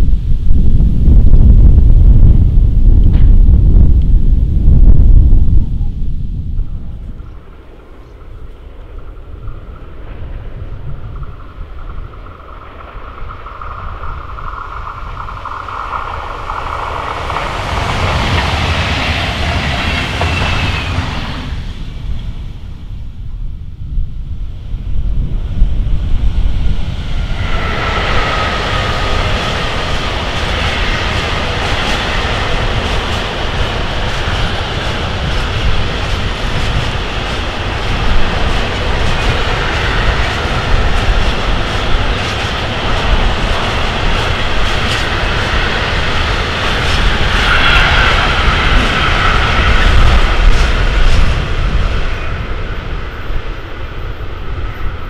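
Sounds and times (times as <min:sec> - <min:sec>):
freight train rumbling past: 0:00.0 - 0:55.0
wheels clattering on rails: 0:06.8 - 0:21.7, 0:27.0 - 0:54.6.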